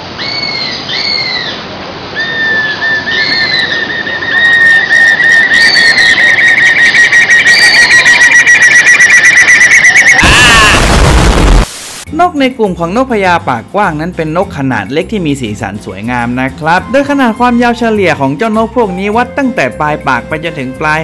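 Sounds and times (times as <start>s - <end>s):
bird singing whistled trill: 2.2s - 10.5s.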